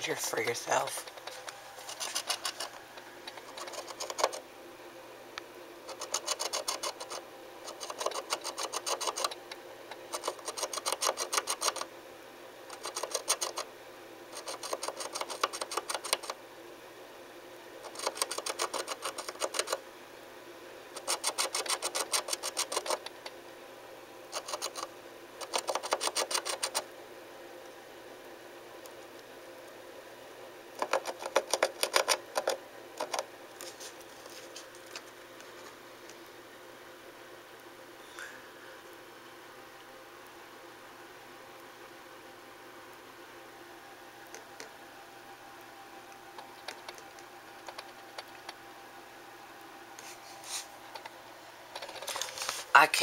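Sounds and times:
animal scratching inside a wall: 1.1 - 4.4, 5.9 - 9.4, 10.0 - 11.9, 12.7 - 13.7, 14.3 - 16.4, 17.8 - 19.8, 21.0 - 23.1, 24.3 - 26.8, 30.8 - 34.7.

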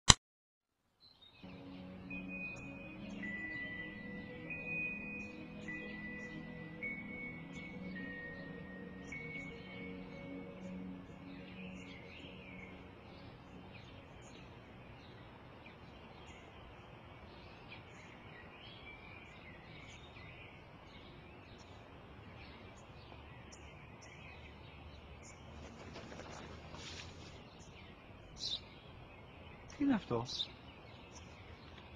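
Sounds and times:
faint outdoor hiss: 0.8 - 31.9
small birds chirping: 1.0 - 31.9
brief rustle: 25.6 - 27.4.

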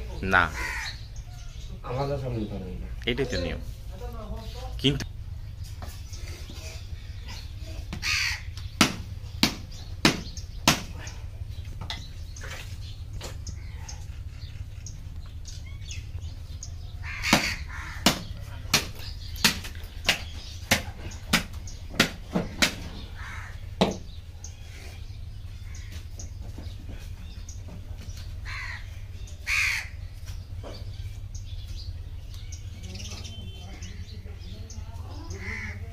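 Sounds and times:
steady low hum: 0.0 - 35.9
crows cawing: 0.2 - 1.7, 7.8 - 8.8, 16.9 - 19.2, 22.4 - 24.1, 25.5 - 26.2, 28.4 - 30.4, 35.1 - 35.9
sharp evenly spaced knocks: 7.8 - 13.6, 17.2 - 24.2.

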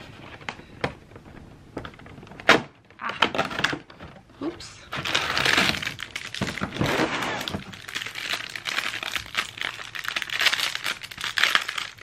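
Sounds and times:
plastic wrapping crinkling: 4.9 - 12.0.

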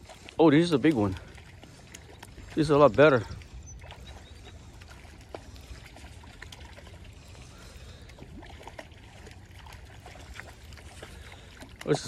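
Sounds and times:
water splashing from thrashing fish: 0.0 - 12.0.

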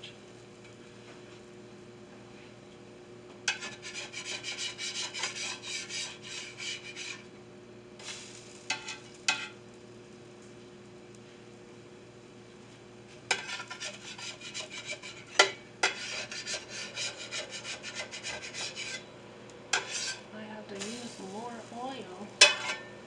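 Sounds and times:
metal spatula scraping pan: 3.5 - 7.3, 8.7 - 9.5, 13.3 - 19.1, 19.7 - 21.4, 22.4 - 23.0.

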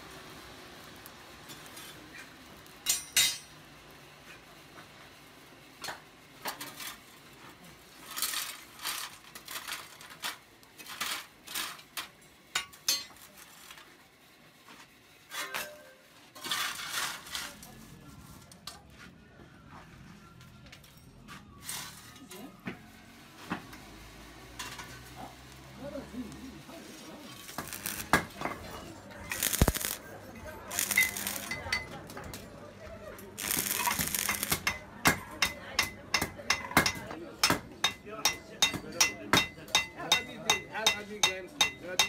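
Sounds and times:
iron tools clinking and scraping: 1.4 - 3.6, 27.3 - 32.4, 33.3 - 37.1.

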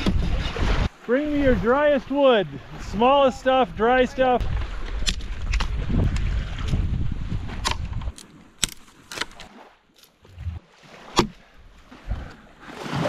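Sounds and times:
sticks snapping: 7.6 - 10.1.

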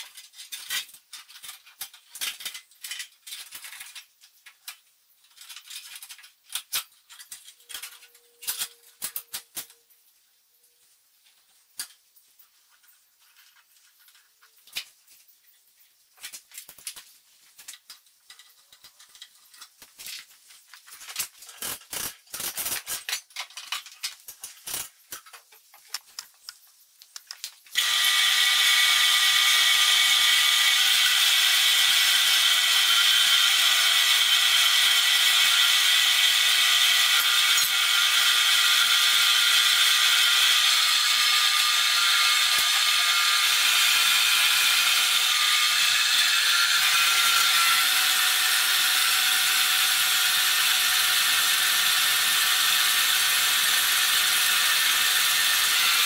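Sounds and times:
bandsaw running with high whine: 27.8 - 56.0.

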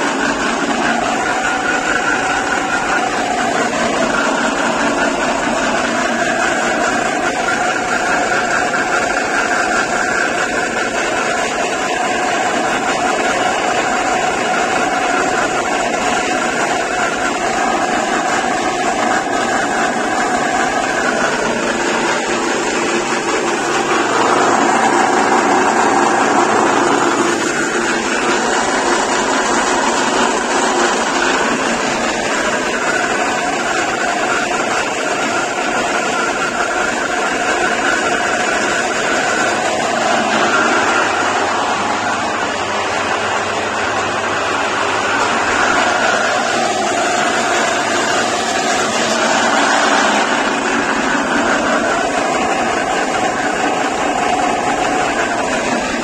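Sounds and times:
pellet machine running: 0.0 - 56.0.

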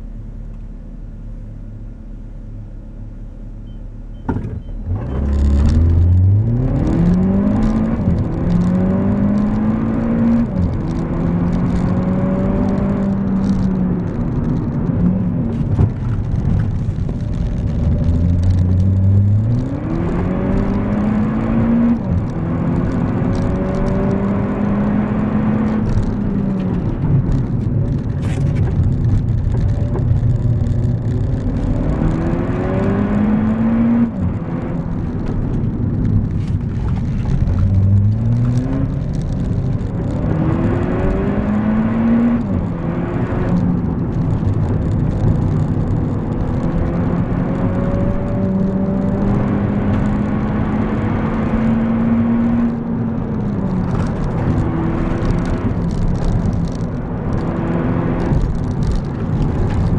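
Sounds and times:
road and tyre noise: 0.0 - 59.9
car engine revving: 4.4 - 59.9.

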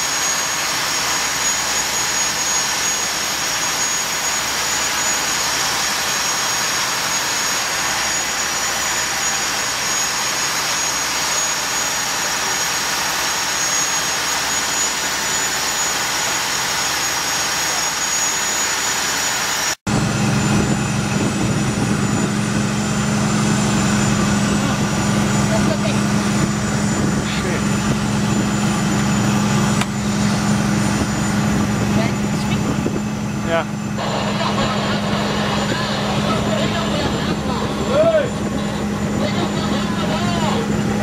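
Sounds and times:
loud rushing hiss: 0.0 - 19.8
boat engine droning: 0.0 - 41.0
thin high whine: 0.0 - 41.0.

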